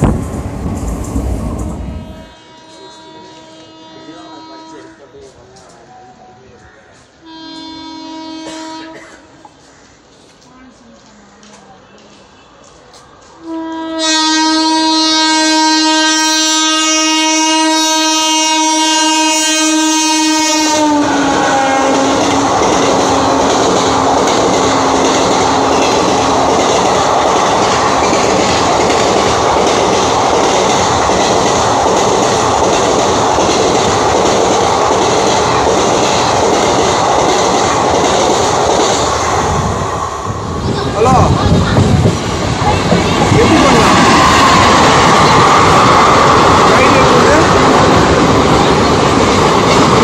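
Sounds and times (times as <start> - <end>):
locomotive horn: 1.8 - 5.2, 7.2 - 9.4, 13.4 - 22.3.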